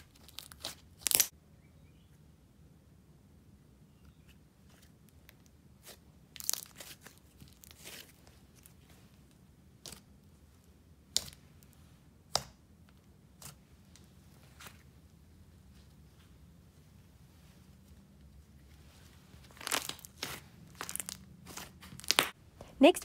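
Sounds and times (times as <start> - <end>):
slime crackling and popping: 0.0 - 1.3, 5.2 - 8.8, 19.4 - 22.4.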